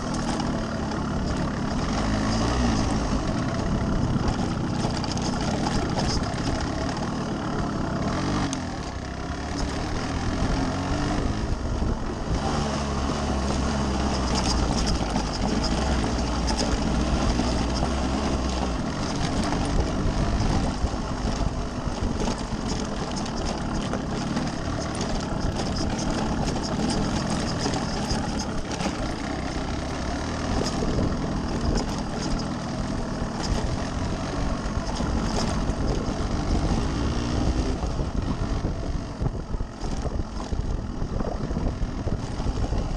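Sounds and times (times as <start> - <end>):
two-stroke motorcycle engine revving: 0.0 - 42.9
bike knocks and rattles: 14.1 - 33.8.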